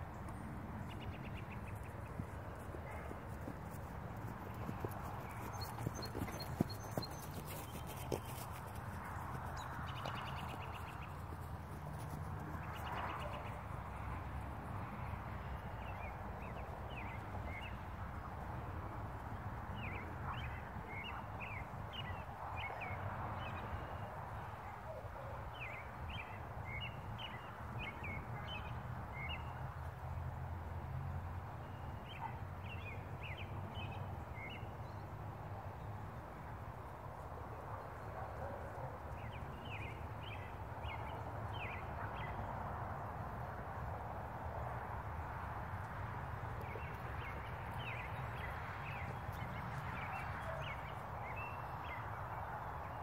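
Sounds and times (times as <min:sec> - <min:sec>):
birds chirping: 0:00.1 - 0:12.0, 0:46.4 - 0:53.0.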